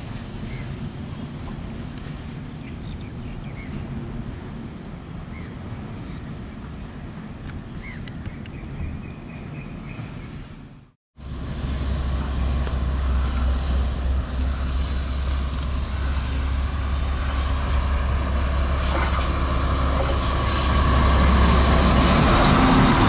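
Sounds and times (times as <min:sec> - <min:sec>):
diesel train rumble: 0:11.2 - 0:23.0
wheel squeals on rails: 0:11.5 - 0:23.0.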